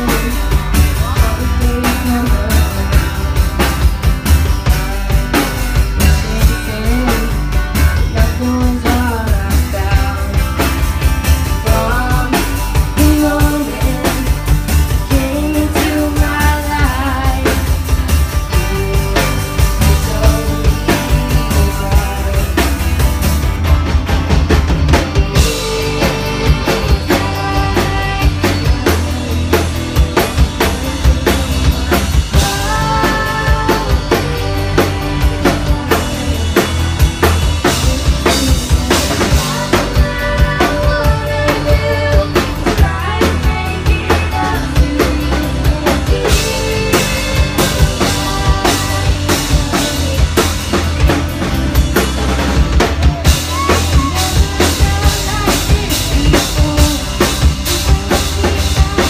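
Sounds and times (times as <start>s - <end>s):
women singing: 0.0s - 3.4s, 8.0s - 10.6s, 11.6s - 22.9s, 25.4s - 29.4s, 30.4s - 36.4s, 37.7s - 51.2s, 53.5s - 59.0s
drum kit bass drum and snare: 0.0s - 59.0s
electric bass and guitar: 0.0s - 59.0s.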